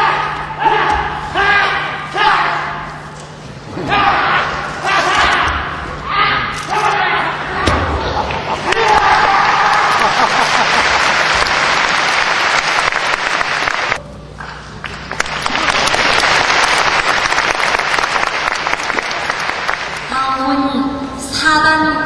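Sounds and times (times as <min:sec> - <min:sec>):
audience applauding: 0:08.5 - 0:14.0, 0:14.8 - 0:20.1.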